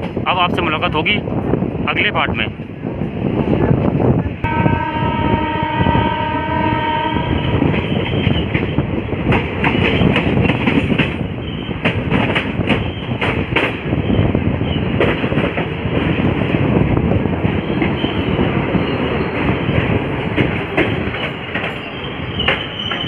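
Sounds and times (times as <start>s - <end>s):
train running rumble: 0.0s - 23.0s
train horn: 4.5s - 7.7s
wheels clattering over rail joints: 7.7s - 23.0s.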